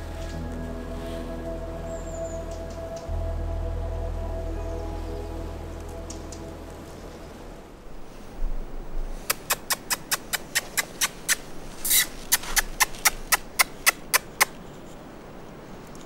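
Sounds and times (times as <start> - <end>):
mouse-like squeaks: 9.3 - 14.6.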